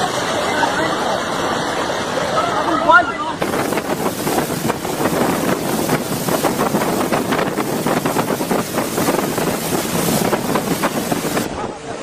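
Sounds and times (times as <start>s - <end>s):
rushing flooded river: 0.0s - 12.0s
wind buffeting microphone: 3.4s - 12.0s.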